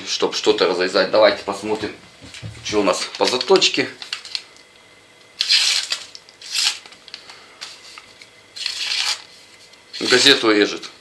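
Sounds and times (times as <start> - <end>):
blade slicing through newspaper: 5.4 - 6.9, 8.6 - 10.4.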